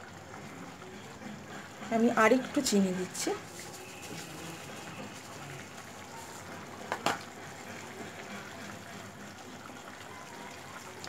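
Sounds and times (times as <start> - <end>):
chutney bubbling in a pan: 0.0 - 11.0
wooden spatula stirring: 1.6 - 6.6.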